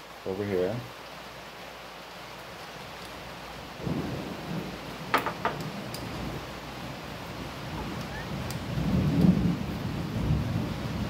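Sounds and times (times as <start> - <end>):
rain hissing: 0.0 - 11.0
low rumble of thunder: 3.7 - 11.0.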